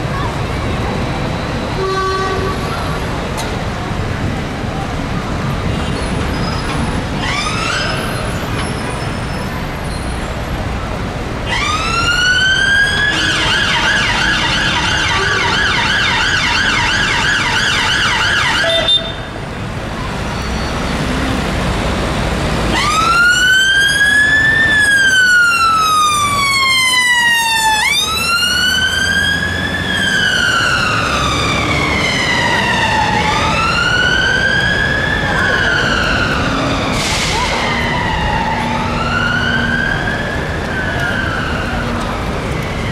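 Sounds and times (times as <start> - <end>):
city traffic noise: 0.0 - 42.9
fire truck siren wailing and yelping: 7.1 - 9.1, 11.4 - 19.2, 22.6 - 42.9.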